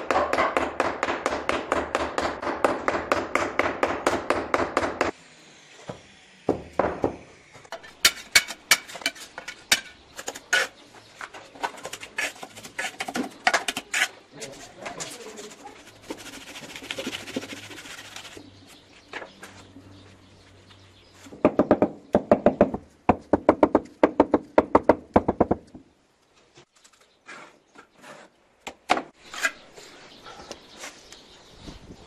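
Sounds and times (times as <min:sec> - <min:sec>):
trowel scraping mortar: 0:07.8 - 0:10.8, 0:11.6 - 0:18.4, 0:29.2 - 0:29.7.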